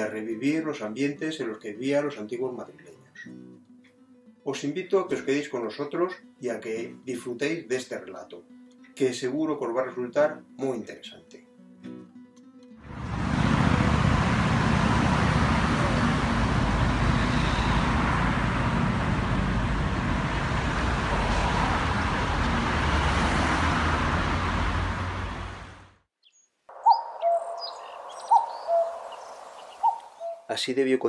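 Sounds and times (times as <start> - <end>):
road traffic: 12.8 - 26.1, 26.7 - 30.5
birds chirping and calling: 26.2 - 30.6.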